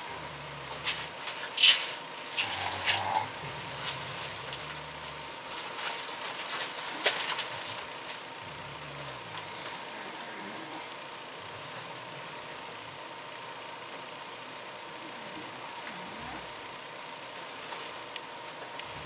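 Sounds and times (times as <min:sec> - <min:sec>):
faint steady hum: 0:00.0 - 0:19.0
packaging crinkling and rustling: 0:00.6 - 0:09.2.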